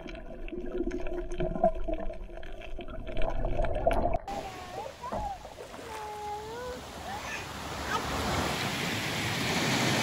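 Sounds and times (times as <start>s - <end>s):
small waves breaking on sand: 4.8s - 10.0s.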